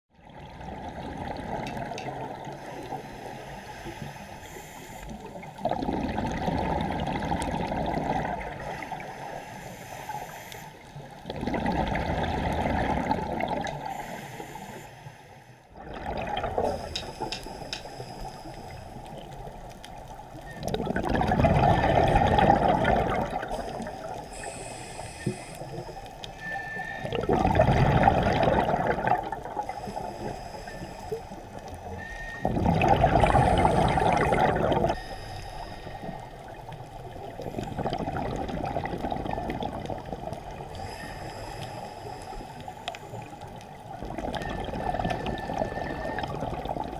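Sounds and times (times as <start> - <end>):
gurgling exhaled bubbles: 0.2 - 3.0, 5.2 - 9.1, 11.1 - 14.2, 15.8 - 17.7, 18.7 - 35.0, 36.0 - 41.0, 43.2 - 46.9
diver breathing through regulator: 2.4 - 5.4, 8.6 - 11.0, 13.8 - 15.8, 16.5 - 19.3, 21.5 - 38.2, 40.6 - 43.5, 44.3 - 46.6.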